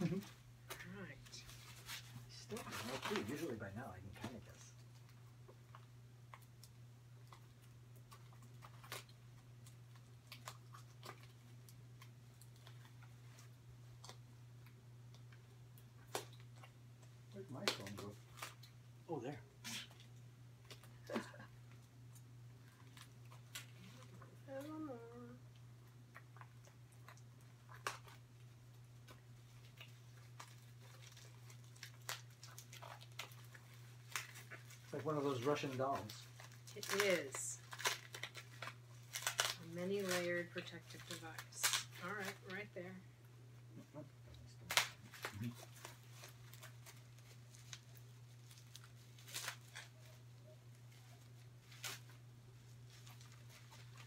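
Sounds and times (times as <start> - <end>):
cardboard and tape rustling: 0.0 - 5.1, 17.4 - 18.7, 29.0 - 42.7, 44.6 - 54.0.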